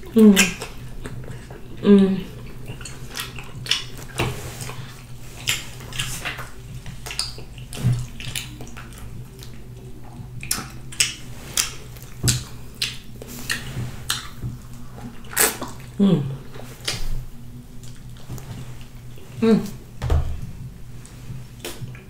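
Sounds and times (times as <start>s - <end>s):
sucking at fingers: 0.0s - 18.2s
wet smacking and chewing: 0.0s - 19.3s, 21.0s - 22.0s
low steady hum: 0.0s - 22.0s.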